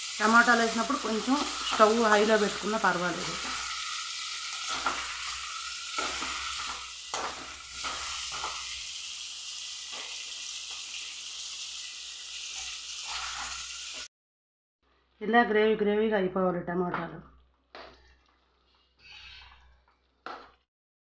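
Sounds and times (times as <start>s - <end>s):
vegetables sizzling in hot oil: 0.0s - 14.1s.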